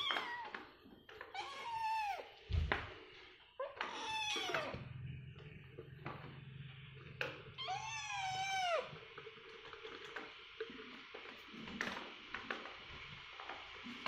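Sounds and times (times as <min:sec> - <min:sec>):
kitten meowing: 0:00.0 - 0:00.5, 0:01.3 - 0:02.3, 0:03.8 - 0:04.8, 0:07.6 - 0:08.9.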